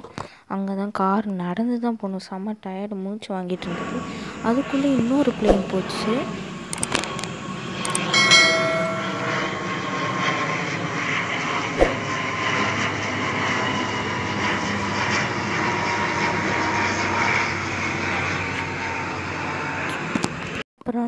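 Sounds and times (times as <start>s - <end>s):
airliner engine drone: 3.5s - 20.6s
sharp click: 6.7s - 7.1s, 7.8s - 9.0s
short electronic chime: 7.9s - 9.6s.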